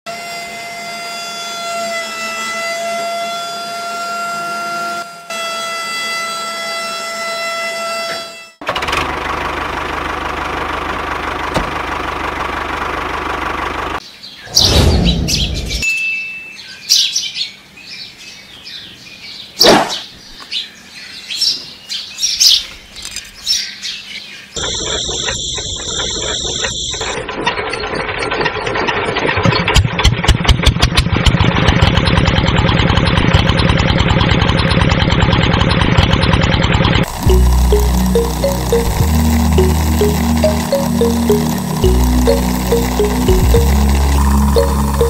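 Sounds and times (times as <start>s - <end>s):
model diesel engine running: 8.6s - 14.0s, 24.6s - 45.0s.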